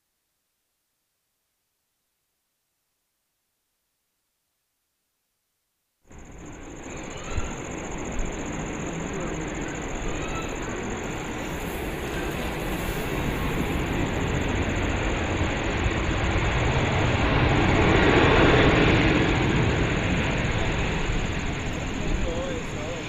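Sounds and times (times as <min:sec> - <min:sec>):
jet engines of airliner rolling: 0:06.1 - 0:23.0.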